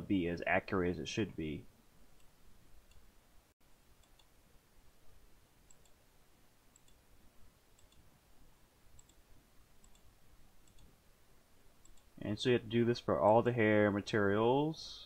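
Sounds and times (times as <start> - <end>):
computer mouse clicks: 4.0 - 4.3, 5.7 - 6.0, 6.7 - 7.0, 7.8 - 8.1, 9.0 - 9.2, 9.8 - 10.9, 11.8 - 12.1.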